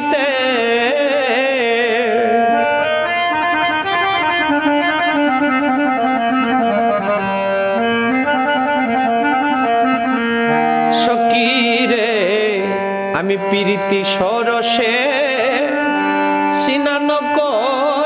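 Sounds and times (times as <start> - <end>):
man singing: 0.0 - 2.9, 10.6 - 18.0
keyboard melody: 0.0 - 18.0.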